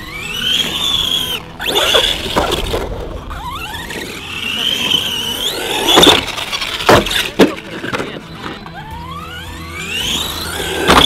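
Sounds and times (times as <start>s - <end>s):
electric motor whining: 0.0s - 11.0s.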